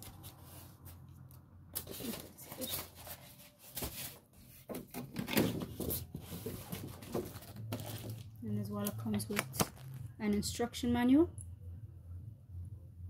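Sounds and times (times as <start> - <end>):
plastic packaging rustling and knocking: 1.8 - 8.3, 9.3 - 10.1.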